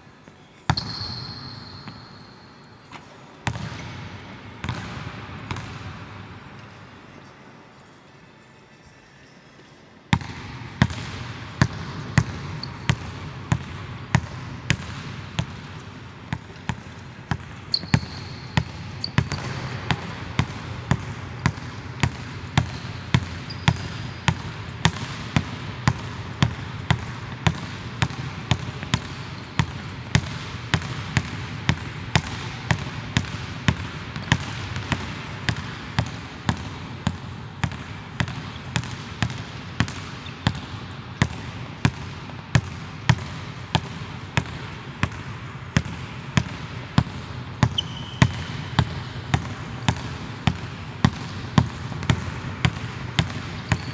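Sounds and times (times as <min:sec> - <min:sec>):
shoe squeaks: 0:00.7 - 0:03.0, 0:17.7 - 0:19.5, 0:22.8 - 0:24.1, 0:47.7 - 0:48.5, 0:53.5 - 0:53.9.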